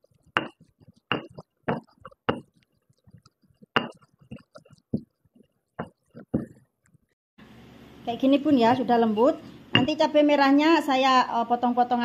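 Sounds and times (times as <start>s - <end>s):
stone pestle pounding in mortar: 0.2s - 2.6s, 3.2s - 5.1s, 5.8s - 6.6s.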